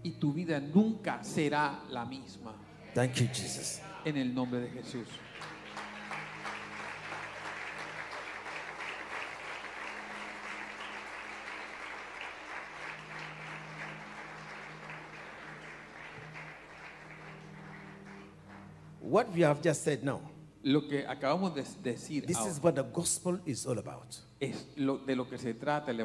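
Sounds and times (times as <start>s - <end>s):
congregation applauding: 4.5s - 19.9s.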